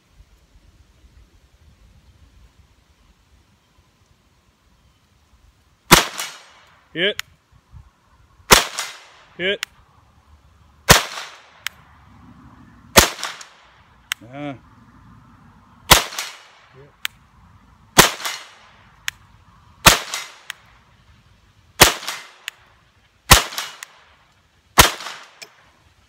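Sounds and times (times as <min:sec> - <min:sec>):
pistol shots echoing: 0:05.9 - 0:06.5, 0:08.5 - 0:09.2, 0:10.9 - 0:11.6, 0:13.0 - 0:13.6, 0:15.9 - 0:16.6, 0:18.0 - 0:18.6, 0:19.8 - 0:20.6, 0:21.8 - 0:22.6, 0:23.3 - 0:24.0, 0:24.8 - 0:25.5.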